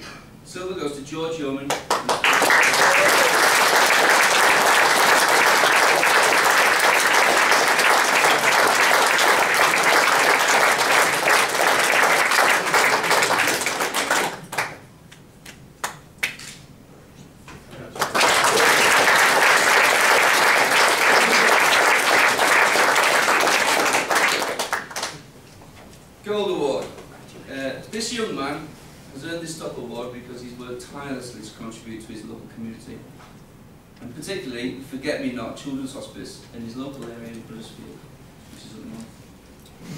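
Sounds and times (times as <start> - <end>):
audience applauding: 1.7 - 14.8, 18.0 - 25.2.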